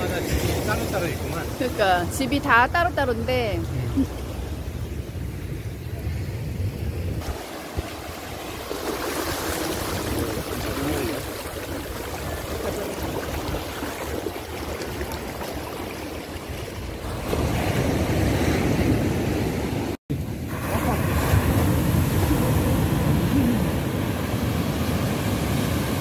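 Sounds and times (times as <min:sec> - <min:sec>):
small waves washing over sand: 0:07.2 - 0:26.0.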